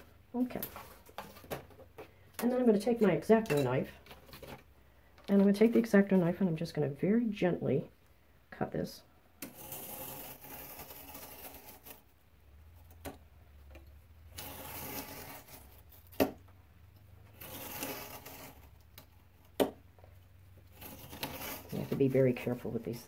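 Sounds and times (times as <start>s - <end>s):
knife slicing cardboard: 9.4s - 12.0s, 14.3s - 16.4s, 17.4s - 18.7s, 20.7s - 22.8s.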